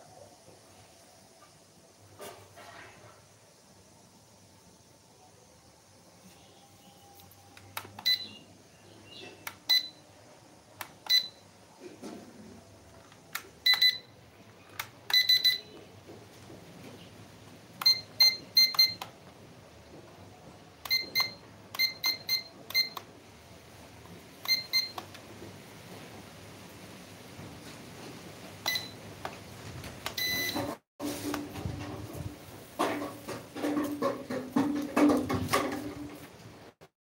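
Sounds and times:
short high beeps: 8.0s - 8.4s, 13.6s - 14.1s, 15.1s - 15.8s, 17.8s - 19.0s, 20.8s - 23.0s, 30.2s - 30.6s.

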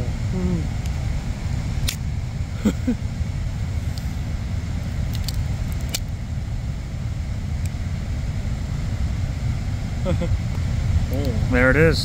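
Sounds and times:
steady low rumble: 0.0s - 12.0s
metal casing clicks and cracks: 5.1s - 6.1s.

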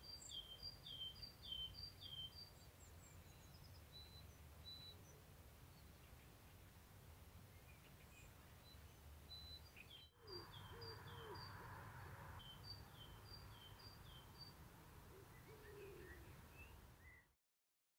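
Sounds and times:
songbirds singing: 0.0s - 17.4s.

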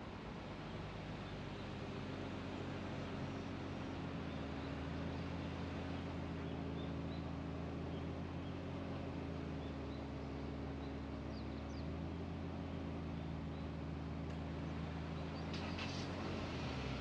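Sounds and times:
car engine hum: 0.0s - 17.0s
tyre and road noise: 14.1s - 17.0s.

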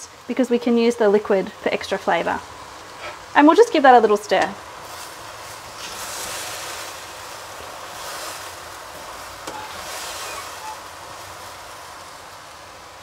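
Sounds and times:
food stirred in saucepan: 4.6s - 13.0s.

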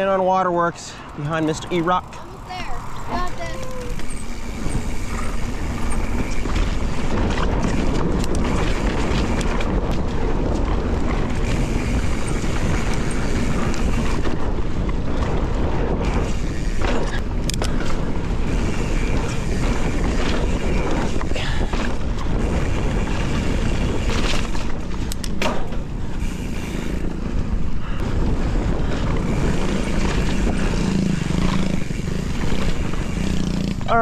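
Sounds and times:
bike rattling over bumps: 0.0s - 34.0s
wind buffeting microphone: 0.0s - 34.0s
bike tyres rumbling on dirt: 1.5s - 34.0s.

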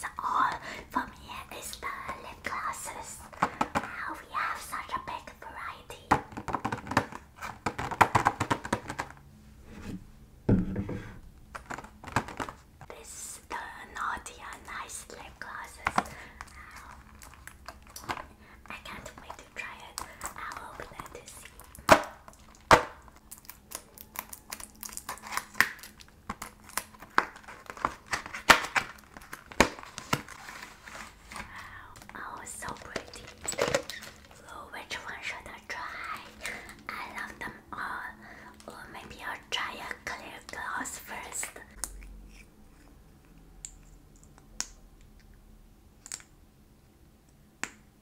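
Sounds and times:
heavy knock: 10.5s - 11.1s
packaging crinkling: 15.8s - 18.4s, 19.1s - 34.5s
packaging snapping: 20.0s - 34.4s.

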